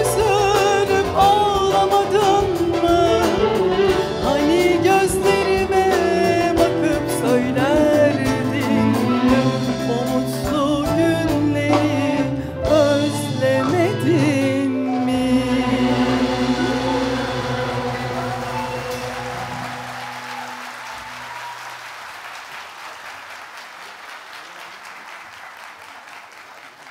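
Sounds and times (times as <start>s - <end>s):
woman singing with vibrato: 0.0s - 19.6s
clarinet: 0.0s - 21.3s.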